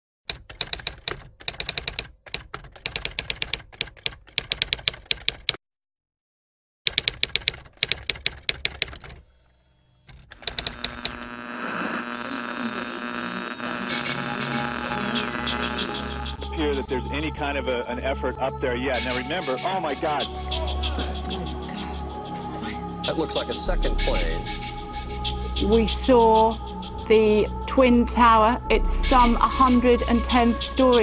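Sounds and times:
typewriter keys clacking: 0:00.3 - 0:05.6, 0:06.9 - 0:09.2, 0:10.1 - 0:11.2
steady hum: 0:10.6 - 0:17.5.

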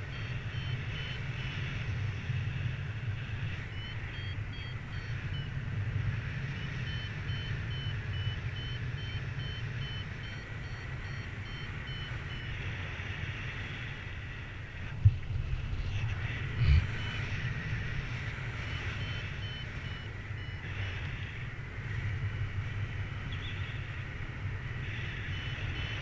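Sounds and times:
variometer beeping: 0:00.0 - 0:01.5, 0:03.7 - 0:05.6, 0:06.5 - 0:12.6, 0:18.6 - 0:20.7
wind rumble on microphone: 0:00.0 - 0:26.0.

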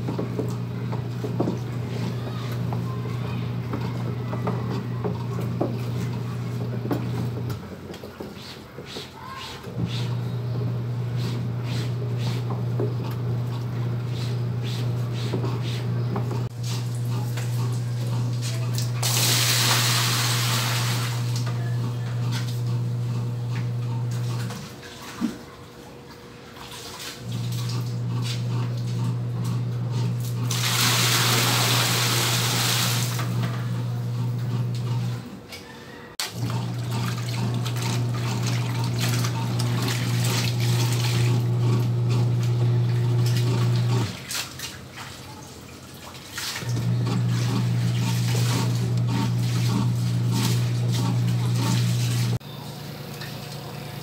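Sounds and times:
washing machine motor humming: 0:00.0 - 0:54.0
water splashing: 0:30.5 - 0:33.2, 0:36.2 - 0:52.4.

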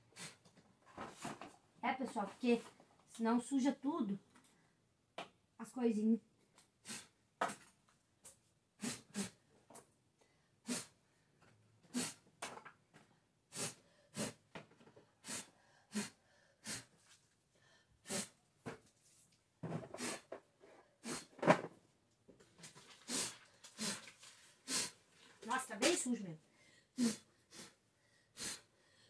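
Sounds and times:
person blowing through lips: 0:06.8 - 0:07.1, 0:08.8 - 0:09.4, 0:10.6 - 0:11.0, 0:11.9 - 0:12.2, 0:13.5 - 0:14.4, 0:15.2 - 0:16.9, 0:18.0 - 0:18.4, 0:19.9 - 0:20.3, 0:21.0 - 0:21.4, 0:23.0 - 0:25.0, 0:27.0 - 0:27.8, 0:28.4 - 0:28.7.

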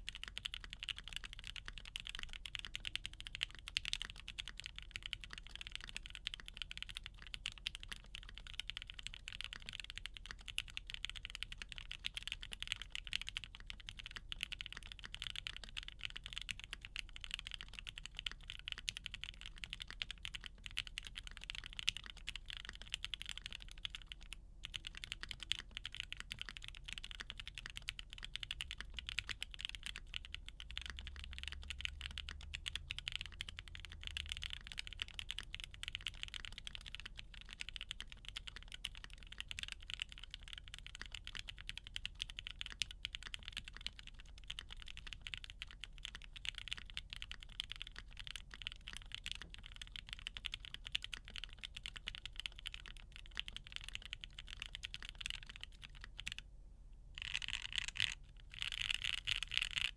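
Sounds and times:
mechanical keyboard typing: 0:00.0 - 0:56.4, 0:57.2 - 0:59.9.

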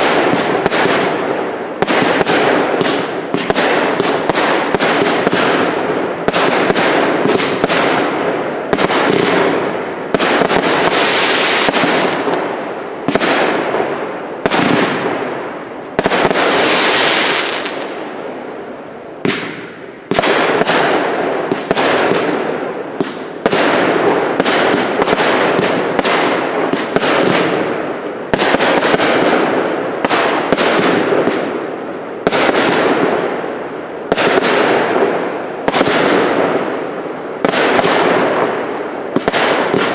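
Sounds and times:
firework bangs echoing: 0:00.0 - 0:18.2, 0:19.2 - 0:39.9
fireworks hissing: 0:10.5 - 0:12.4, 0:16.2 - 0:18.0.

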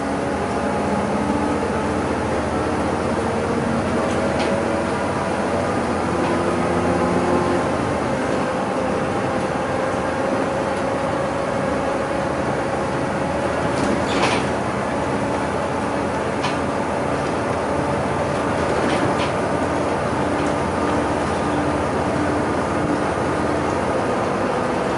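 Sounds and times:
bus engine and road noise: 0:00.0 - 0:24.9.

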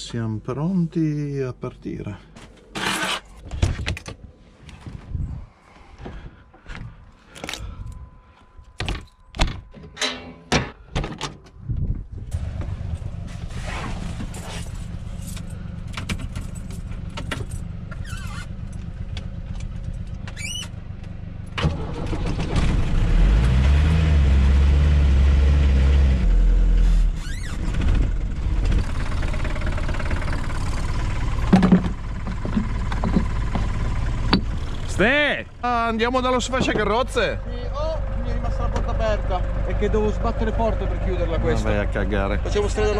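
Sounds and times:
van engine idling and revving: 0:12.2 - 0:42.9
thunk: 0:31.5 - 0:33.2.

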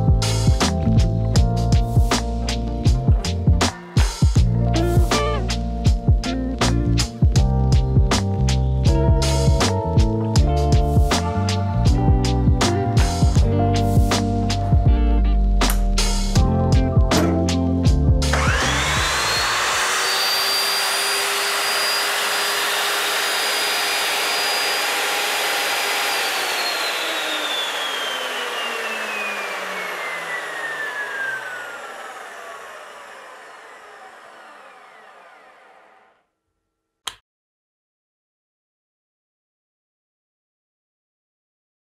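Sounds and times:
chop saw motor whining: 0:18.2 - 0:36.3.

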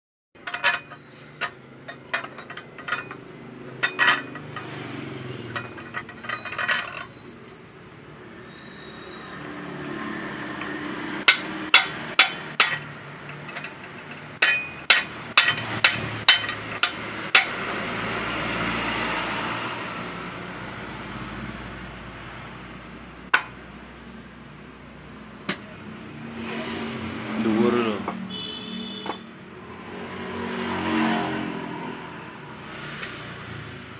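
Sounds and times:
metal clinks and taps: 0:00.4 - 0:04.8, 0:11.3 - 0:17.5.

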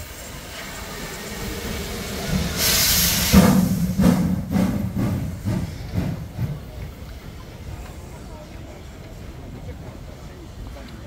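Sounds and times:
steam hiss: 0:00.0 - 0:07.3
steam locomotive exhaust chuffs: 0:00.0 - 0:08.0.

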